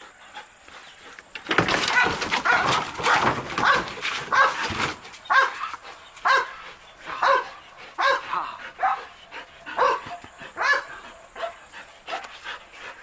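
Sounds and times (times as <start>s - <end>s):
dog barking: 2.0s - 4.7s, 5.3s - 9.1s, 9.7s - 12.3s.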